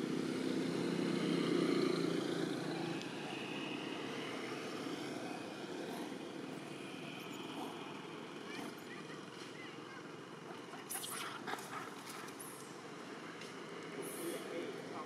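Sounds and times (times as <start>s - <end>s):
passing vehicle engine drone: 0.0s - 11.5s.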